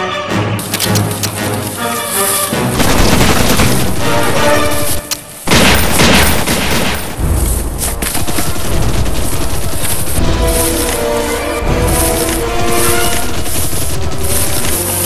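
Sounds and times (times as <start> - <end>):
background music: 0.0 - 15.0
gunfire: 2.8 - 4.8, 5.4 - 7.2
booming blasts: 5.5 - 10.7.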